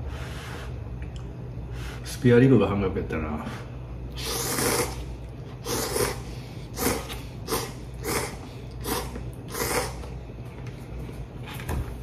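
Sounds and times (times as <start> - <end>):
man slurping noodles: 4.1 - 10.1.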